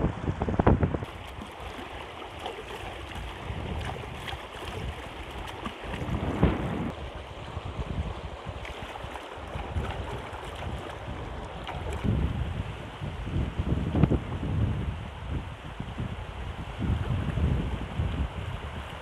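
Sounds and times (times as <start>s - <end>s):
wind buffeting microphone: 0.0s - 19.0s
hands splashing in water: 1.0s - 6.9s, 8.6s - 12.1s.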